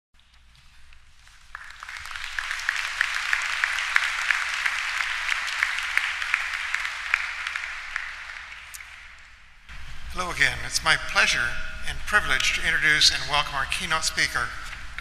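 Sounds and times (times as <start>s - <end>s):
audience applauding: 1.2s - 9.4s.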